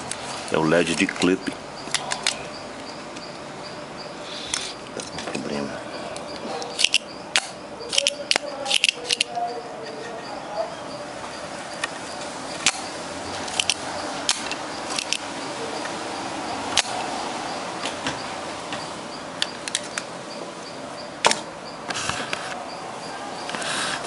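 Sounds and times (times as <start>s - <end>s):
background hiss: 0.0s - 9.2s
small parts clicking on circuit board: 6.2s - 9.4s, 13.5s - 15.3s.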